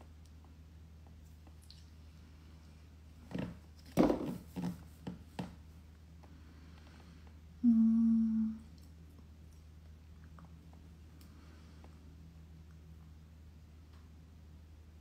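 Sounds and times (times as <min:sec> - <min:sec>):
woman humming: 0:07.6 - 0:08.8.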